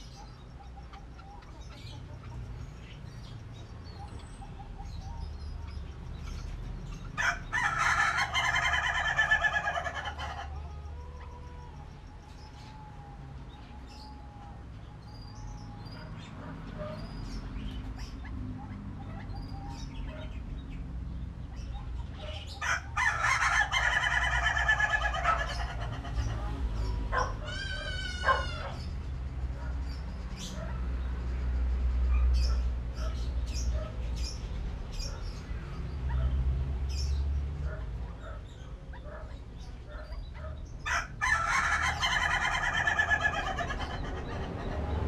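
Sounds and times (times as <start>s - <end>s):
waterhens giving harsh calls: 7.2s - 11.7s, 22.1s - 28.9s, 40.3s - 45.0s.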